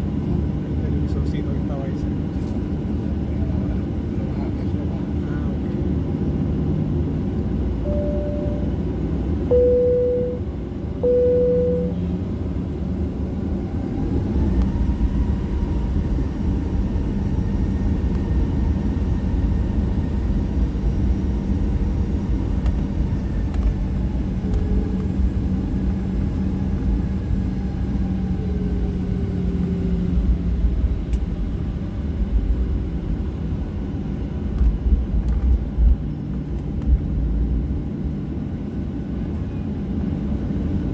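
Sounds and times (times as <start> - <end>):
jet engines rumbling: 0.0 - 40.9
short steady tones: 7.8 - 8.7, 9.5 - 10.4, 11.0 - 12.0
faint whine: 7.8 - 12.2
wheels rolling on taxiway: 12.0 - 40.9.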